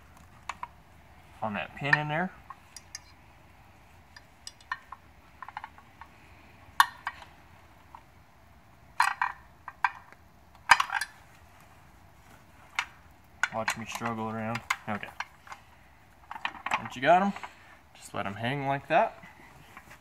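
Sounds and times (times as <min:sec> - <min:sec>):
metal clinks and knocks: 0:04.1 - 0:06.2, 0:09.0 - 0:11.4.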